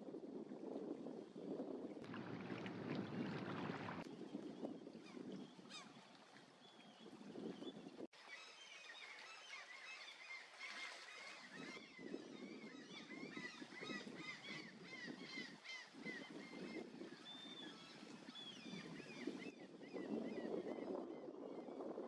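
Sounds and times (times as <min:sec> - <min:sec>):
water sloshing: 0:02.0 - 0:04.1.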